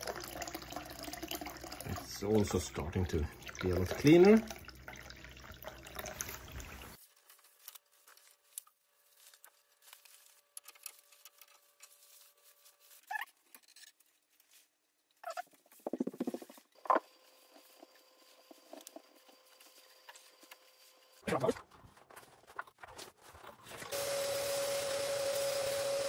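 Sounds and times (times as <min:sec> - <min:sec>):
water pouring into a drain: 0:00.0 - 0:07.0.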